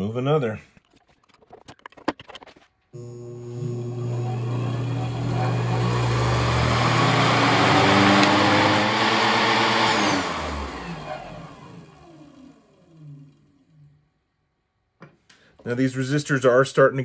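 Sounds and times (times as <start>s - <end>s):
motor and flywheel spinning: 3.0s - 14.0s.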